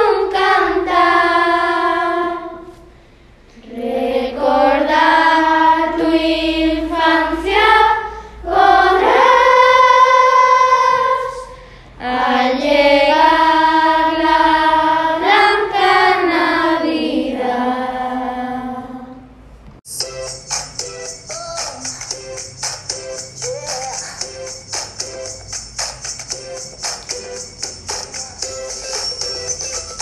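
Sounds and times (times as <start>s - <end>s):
children's choir singing a carol: 0.0s - 3.0s, 3.6s - 19.4s.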